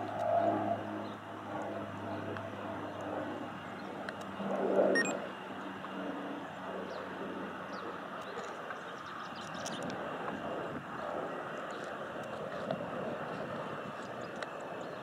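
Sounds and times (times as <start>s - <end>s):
short high beep: 5.0s - 5.2s.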